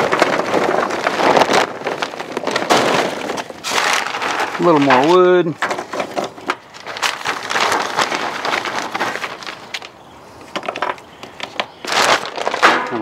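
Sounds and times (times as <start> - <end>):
wood chunks knocking on metal: 12.6 - 13.0.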